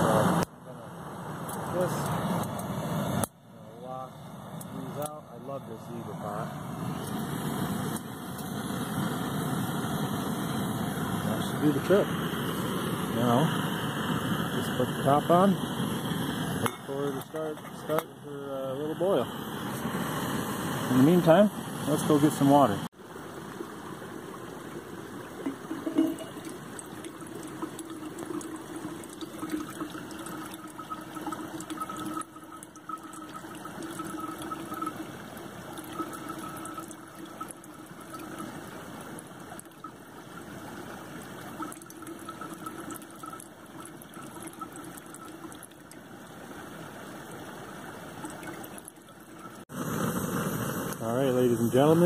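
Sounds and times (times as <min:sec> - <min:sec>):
camping stove roaring: 0:05.9 - 0:18.1, 0:18.7 - 0:22.8, 0:25.2 - 0:45.6, 0:48.2 - 0:52.0
water trickling into metal bottle: 0:10.9 - 0:18.8, 0:25.2 - 0:47.4, 0:48.1 - 0:50.0.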